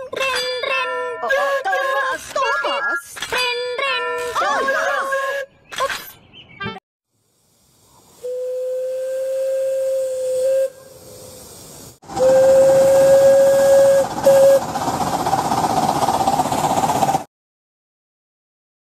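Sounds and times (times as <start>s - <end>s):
steam hissing: 7.1s - 17.3s
steam whistle blasts: 8.1s - 14.7s.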